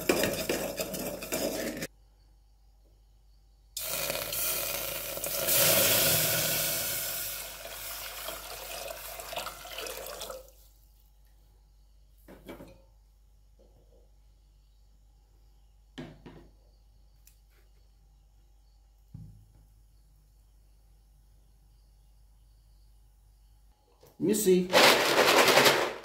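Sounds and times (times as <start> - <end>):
water pouring into pot: 3.8 - 10.6.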